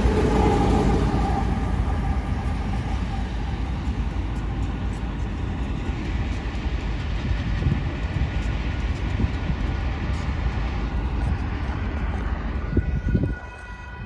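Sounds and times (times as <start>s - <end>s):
diesel locomotive engine: 0.0s - 14.0s
train rolling past: 0.0s - 14.0s.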